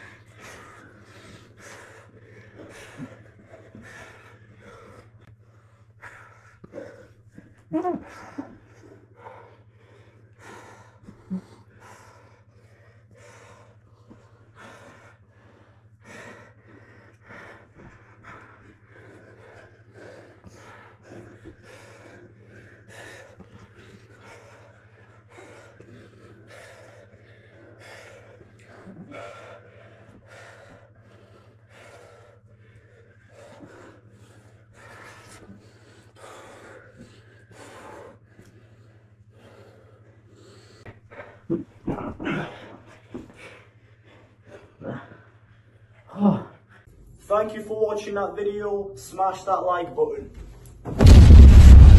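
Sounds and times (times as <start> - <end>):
people breathing hard: 0.0 - 51.9
low hum: 50.9 - 51.9.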